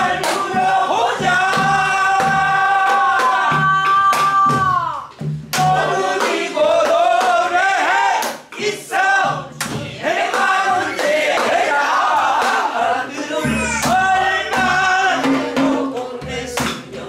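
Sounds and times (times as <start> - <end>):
voices singing along: 0.0 - 17.0
barrel drums struck: 13.4 - 16.9.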